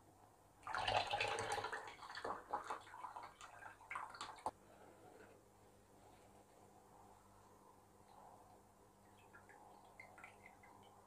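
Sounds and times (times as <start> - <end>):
liquid pouring and splashing: 0.6 - 4.5.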